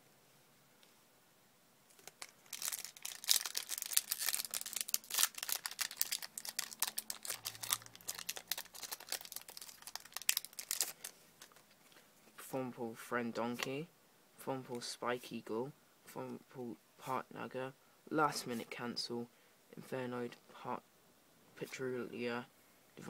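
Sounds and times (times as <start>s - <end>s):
foil wrapper tearing and crinkling: 2.0s - 11.7s.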